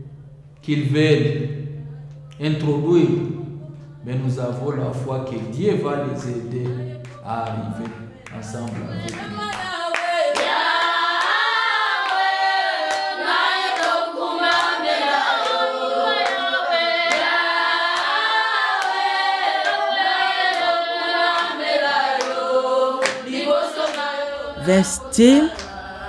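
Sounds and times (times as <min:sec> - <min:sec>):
women singing unaccompanied: 0:06.0 - 0:26.0
hand claps: 0:06.2 - 0:13.1, 0:13.7 - 0:14.8, 0:16.2 - 0:17.3, 0:20.4 - 0:22.4, 0:23.0 - 0:24.1.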